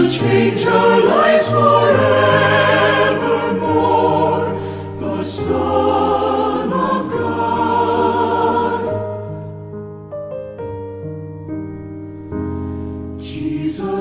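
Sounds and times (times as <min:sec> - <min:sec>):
choir singing: 0:00.0 - 0:09.5, 0:13.2 - 0:14.0.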